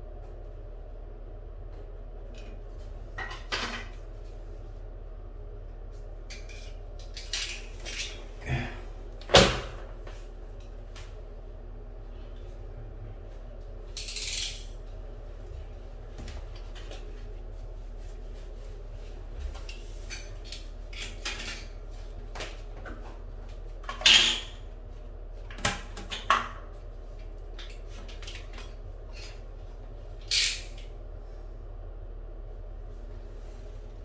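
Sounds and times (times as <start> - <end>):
tools and wood clinking on tile: 6.3 - 8.2.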